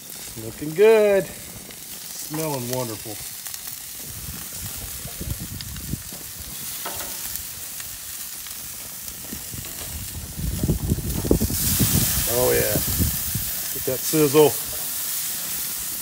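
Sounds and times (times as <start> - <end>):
meat sizzling on a grill: 0.0 - 16.0
low rumble: 9.3 - 13.6.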